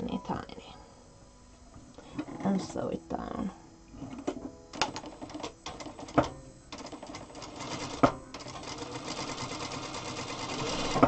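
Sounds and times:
sewing machine stitching: 4.8s - 11.0s.

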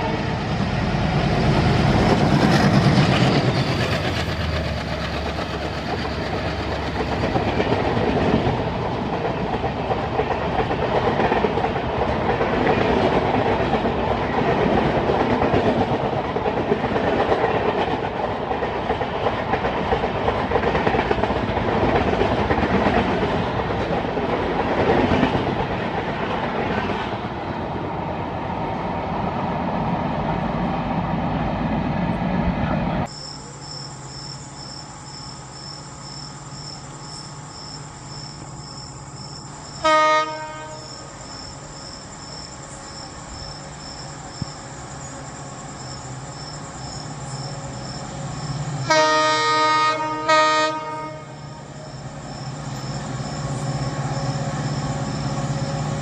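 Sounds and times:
train passing at speed: 0.0s - 56.0s
wheels clattering on rail: 1.1s - 27.3s.

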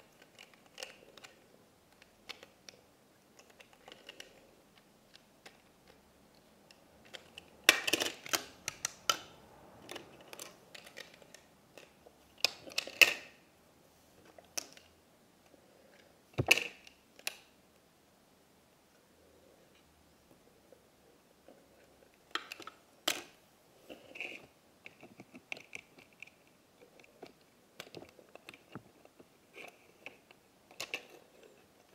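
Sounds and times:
plastic toy clicks and clatters: 0.1s - 6.0s, 6.7s - 13.4s, 22.2s - 23.4s, 24.0s - 31.9s.

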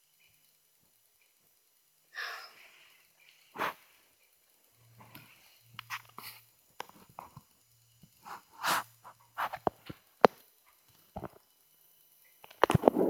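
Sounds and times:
handling clicks rubs and knocks: 5.0s - 7.5s, 8.1s - 11.4s.

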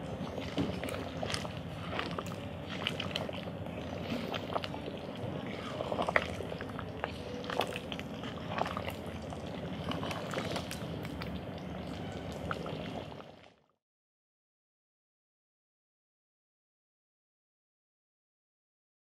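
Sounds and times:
stew bubbling in a pot: 0.0s - 13.8s.

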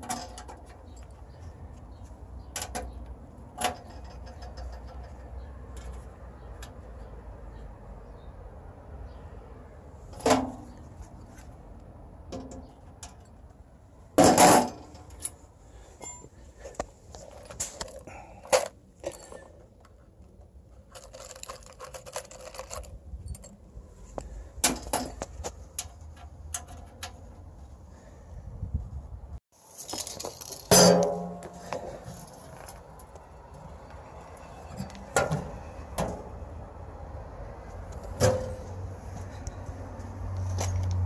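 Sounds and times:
metal clinks and rattles: 3.6s - 6.8s, 17.1s - 19.9s, 20.8s - 27.2s, 29.6s - 33.2s.

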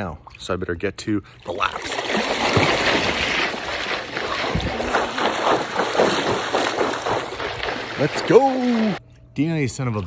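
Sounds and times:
water splashing from swimming: 1.4s - 9.0s.

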